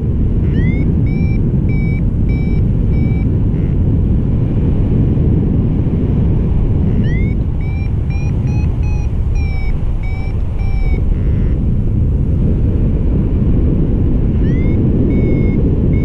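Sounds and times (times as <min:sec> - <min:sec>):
wind rush on microphone: 0:00.0 - 0:16.0
short electronic beeps: 0:00.4 - 0:03.8, 0:06.9 - 0:11.6, 0:14.4 - 0:16.0
variometer rising chirp: 0:00.4 - 0:03.9, 0:06.8 - 0:11.7, 0:14.3 - 0:16.0.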